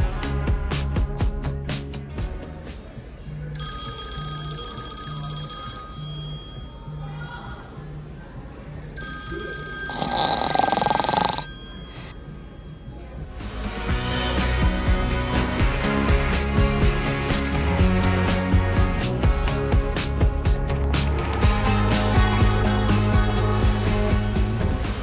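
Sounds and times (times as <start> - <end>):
background music with low beat: 0.0 - 3.3, 13.2 - 25.0
phone ringtone chiming: 3.6 - 13.3.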